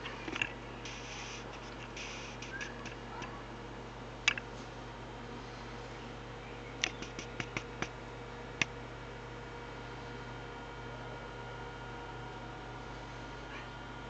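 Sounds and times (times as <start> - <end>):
low motor hum: 0.0 - 14.0
sharp clicks: 4.2 - 4.4, 6.8 - 8.0.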